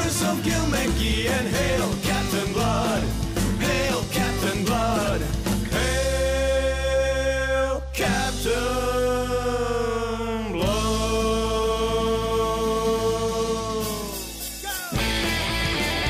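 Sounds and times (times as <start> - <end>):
rock band with guitars: 0.0 - 6.8, 10.6 - 16.0
singer holding long notes: 0.0 - 15.1.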